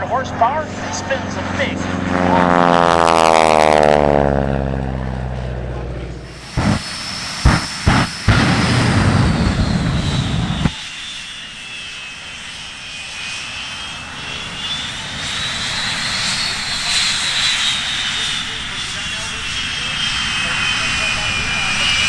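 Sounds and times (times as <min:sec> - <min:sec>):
high turbine whine: 0:00.0 - 0:22.0
jet exhaust blast: 0:00.0 - 0:22.0
jet flame bangs: 0:06.3 - 0:10.8.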